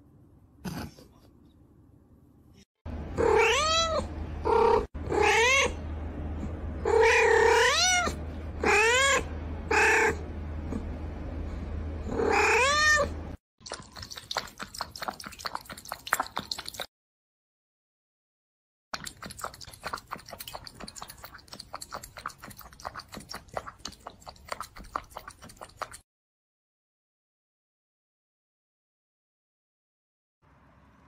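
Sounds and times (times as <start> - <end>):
low steady hum: 0.0 - 16.7
cat meowing loudly: 3.2 - 4.0.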